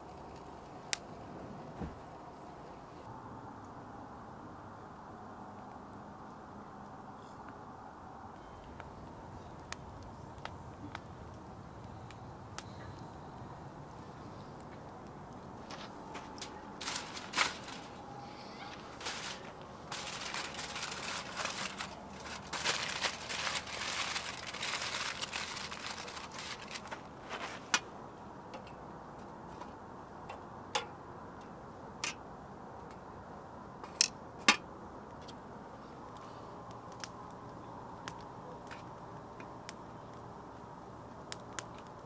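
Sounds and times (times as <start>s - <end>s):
aluminium foil crinkling: 14.6s - 27.7s.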